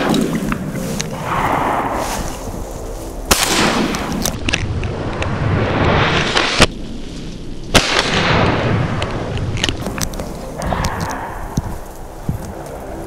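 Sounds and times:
shotgun shots with echo: 3.3s - 4.2s, 7.7s - 8.7s.

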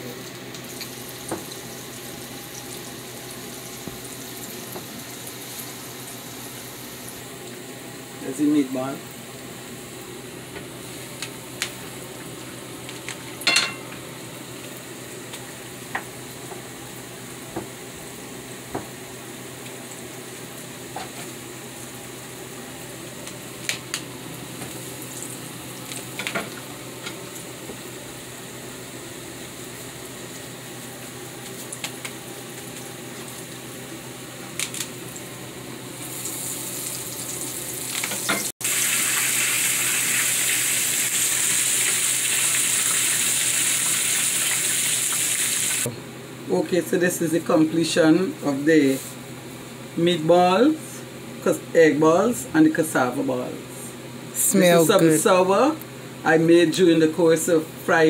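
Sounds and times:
hot oil sizzling: 0.0s - 45.9s.

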